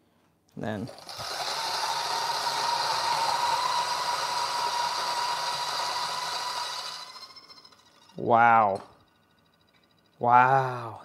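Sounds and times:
electric coffee grinder whirring: 0:00.9 - 0:08.1.

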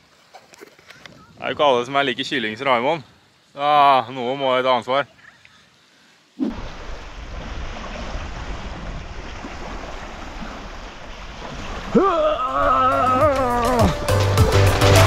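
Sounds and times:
lake water: 0:00.0 - 0:15.0
wind: 0:00.0 - 0:15.0
music with sliding tones: 0:13.4 - 0:15.0.

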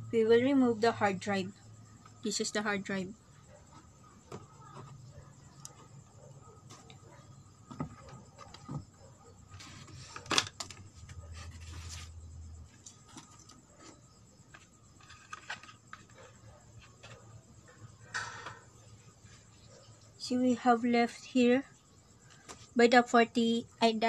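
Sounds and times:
cardboard rustling and scraping: 0:03.6 - 0:08.9, 0:09.5 - 0:17.4.

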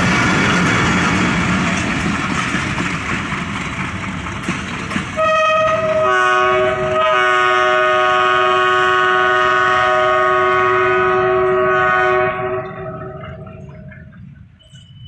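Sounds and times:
passenger train rumbling: 0:00.0 - 0:15.0
locomotive horn blast: 0:05.2 - 0:13.7.

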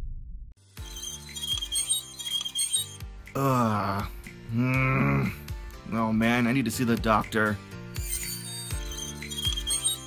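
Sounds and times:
high ringing tones: 0:00.8 - 0:03.0, 0:08.0 - 0:10.0.

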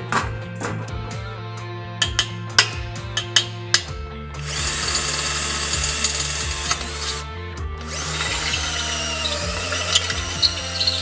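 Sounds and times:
cordless drill boring through steel: 0:04.4 - 0:11.0.

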